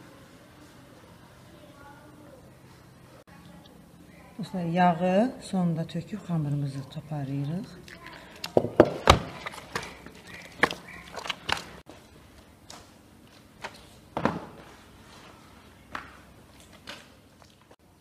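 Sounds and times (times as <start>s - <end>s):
dough being kneaded by hand: 7.7s - 12.4s.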